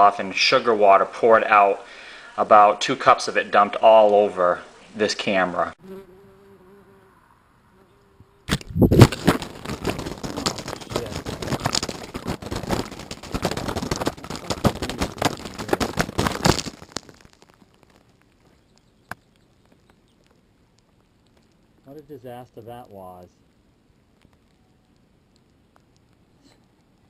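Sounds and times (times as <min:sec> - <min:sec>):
camera hitting ground: 0:08.5 - 0:18.2
crackling and splashing liquid: 0:08.5 - 0:27.0.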